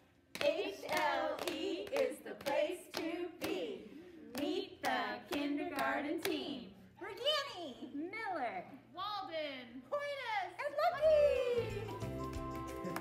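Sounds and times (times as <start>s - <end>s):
hands clapping: 0.3s - 3.6s, 11.9s - 13.0s
women singing a chant: 0.4s - 6.8s.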